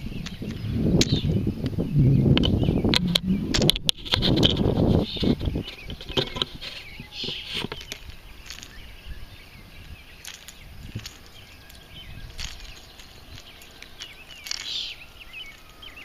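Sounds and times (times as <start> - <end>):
birds chirping: 0.0 - 16.0
pliers clicks and rustles: 10.2 - 16.0.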